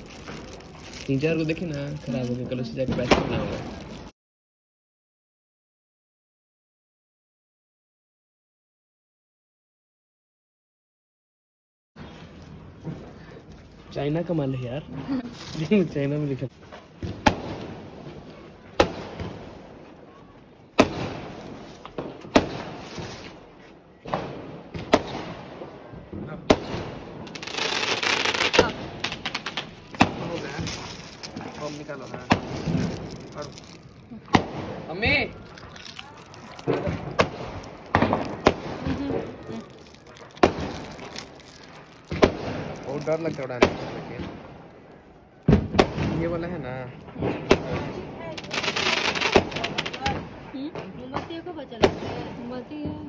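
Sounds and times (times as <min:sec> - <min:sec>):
firecracker bangs echoing: 0:02.0 - 0:03.8, 0:17.0 - 0:19.8, 0:20.8 - 0:23.3, 0:24.0 - 0:33.6, 0:34.3 - 0:35.4, 0:36.6 - 0:44.7, 0:45.4 - 0:53.0.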